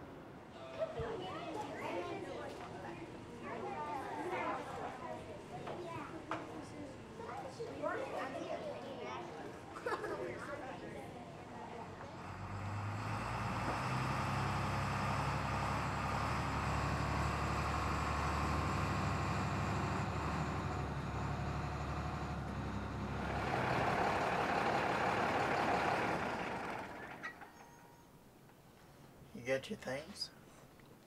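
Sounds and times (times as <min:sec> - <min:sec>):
bus diesel engine running: 0:11.8 - 0:27.8.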